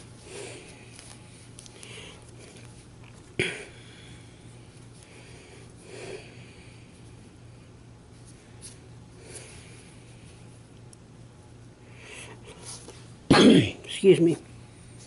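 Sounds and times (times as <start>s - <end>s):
steady low hum: 0.0s - 15.0s
person breathing and sniffing: 0.2s - 2.8s, 8.3s - 10.5s.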